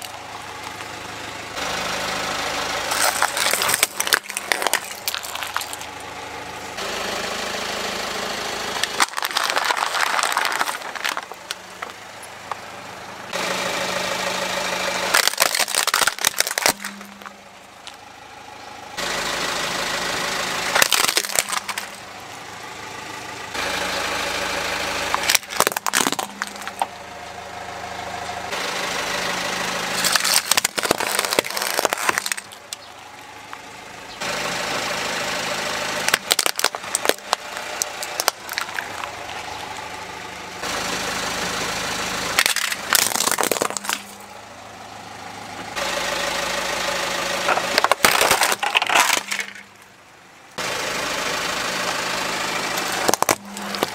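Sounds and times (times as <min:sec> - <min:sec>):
car engine running: 0:00.0 - 0:53.9
plastic toy cars crushed by tyre: 0:02.9 - 0:06.1, 0:08.8 - 0:12.0, 0:15.0 - 0:18.0, 0:20.7 - 0:22.0, 0:25.1 - 0:26.9, 0:29.9 - 0:33.7, 0:36.0 - 0:39.5, 0:42.3 - 0:44.3, 0:47.5 - 0:49.9, 0:52.8 - 0:53.9.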